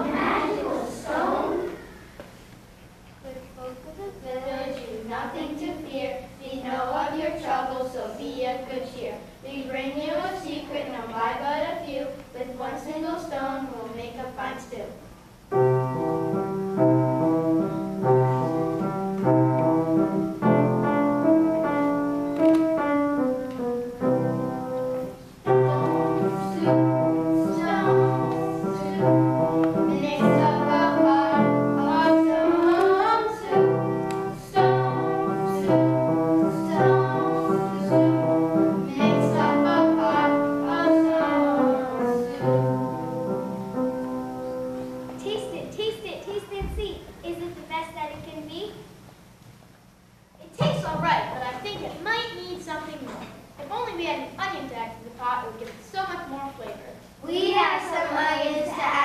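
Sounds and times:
piano accompaniment: 0.0 - 1.7, 15.5 - 45.6
children singing: 0.0 - 2.0, 25.5 - 42.7.

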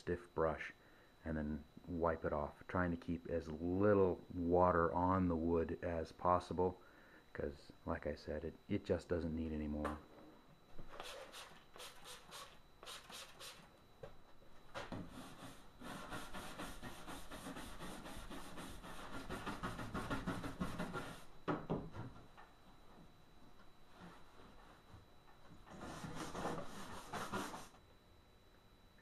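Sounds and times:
bristle brush scrubbing wood: 15.2 - 21.3.

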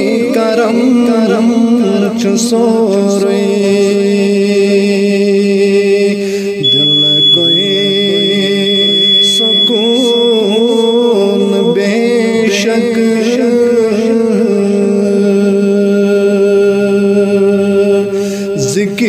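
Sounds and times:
man singing devotional song: 0.0 - 19.0.

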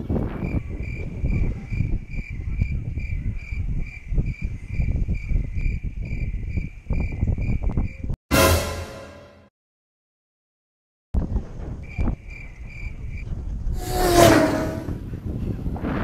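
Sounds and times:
wind buffeting microphone: 0.0 - 8.1, 11.2 - 16.0
high-pitched squeak: 8.3 - 9.4, 13.8 - 15.0.

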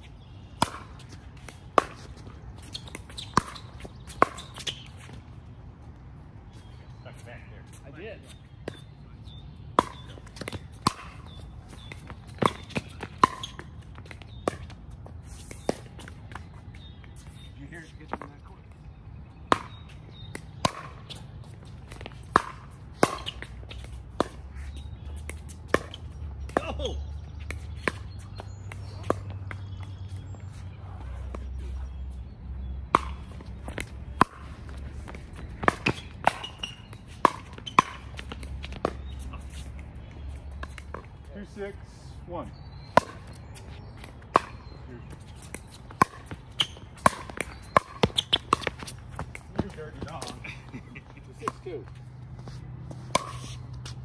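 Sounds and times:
ball bouncing on hard court: 0.6 - 5.2, 9.7 - 16.6, 19.4 - 30.4, 32.8 - 39.6, 42.8 - 50.4.

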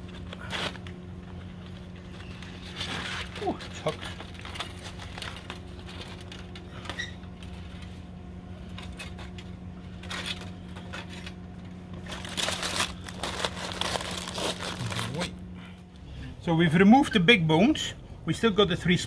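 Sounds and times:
aluminium foil crinkling: 0.0 - 8.0, 8.6 - 15.4
steady low hum: 0.0 - 19.0.

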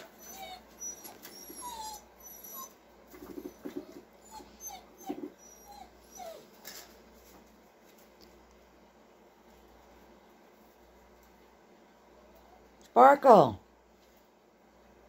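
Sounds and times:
puppy whimpering: 0.0 - 6.7.

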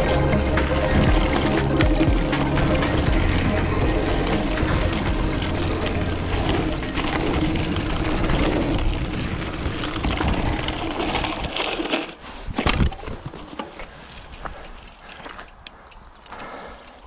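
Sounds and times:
tyres crunching on gravel: 0.0 - 15.7
bike rattling: 0.0 - 17.0
wind buffeting microphone: 3.1 - 11.8.

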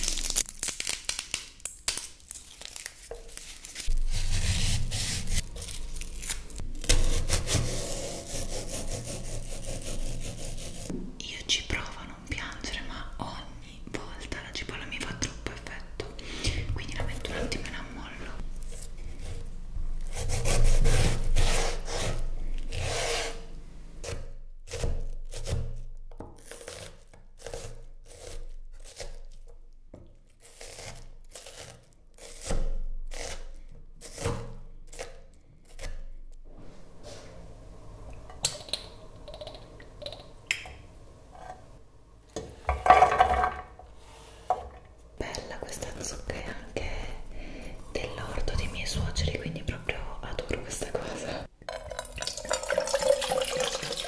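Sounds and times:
onion scraped off board: 3.7 - 10.9.

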